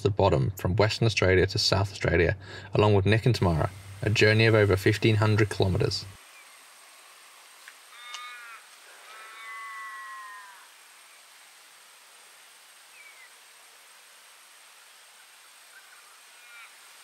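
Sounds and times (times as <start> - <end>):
faint steady hiss: 0.0 - 17.0
crow calling: 7.9 - 10.7.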